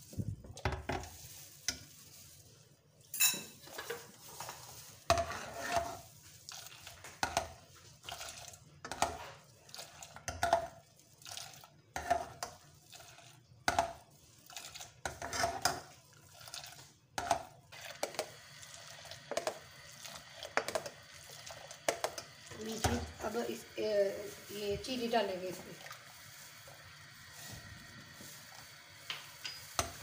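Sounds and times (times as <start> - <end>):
ladle clinking and scraping pan: 3.0 - 6.1, 15.0 - 16.0, 29.0 - 30.0.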